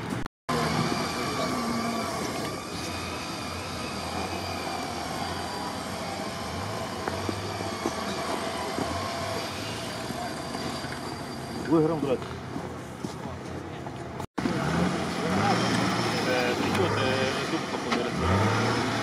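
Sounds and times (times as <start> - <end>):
suv engine climbing: 0.0 - 19.0.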